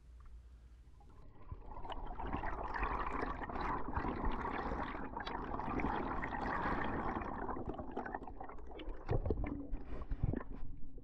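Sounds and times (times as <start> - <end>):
bubbles crackling: 1.0 - 11.0.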